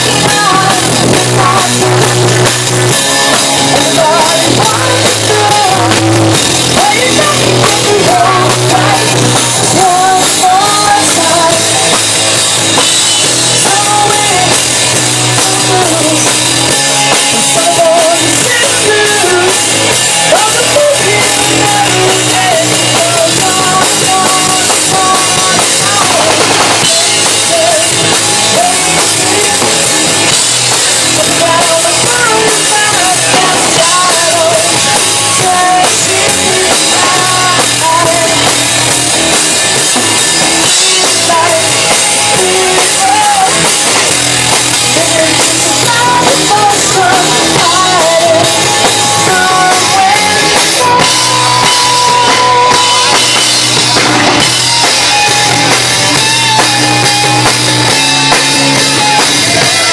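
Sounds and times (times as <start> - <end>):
woman singing: 0.0 - 12.2, 13.5 - 30.4, 31.1 - 39.0, 40.6 - 54.0
rock band playing: 0.0 - 59.9.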